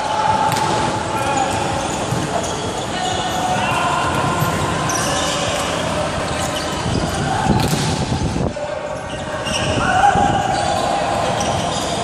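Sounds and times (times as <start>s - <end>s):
players moving and calling: 0.0s - 12.0s
volleyball hit: 0.4s - 0.9s, 7.5s - 8.1s.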